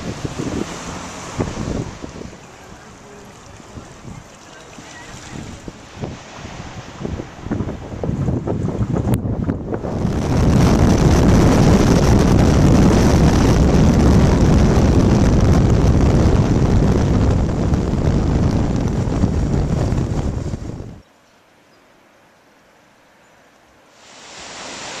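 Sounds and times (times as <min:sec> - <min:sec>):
motorcycle riding: 0:00.0 - 0:05.8
wind rushing over microphone: 0:00.0 - 0:21.1, 0:24.0 - 0:25.0.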